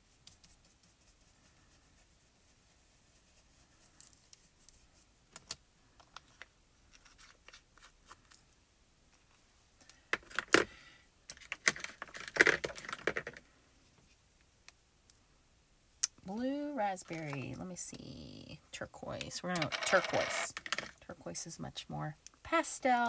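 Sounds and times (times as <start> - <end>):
plastic jars clicking and tapping: 11.3 - 13.4.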